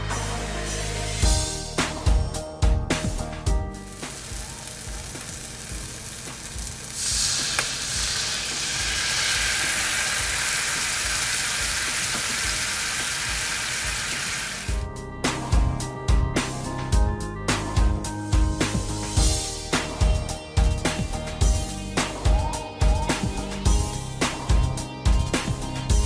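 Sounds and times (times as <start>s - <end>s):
sauce sizzling in a frying pan: 3.8s - 14.8s
sauce bubbling: 3.9s - 14.7s.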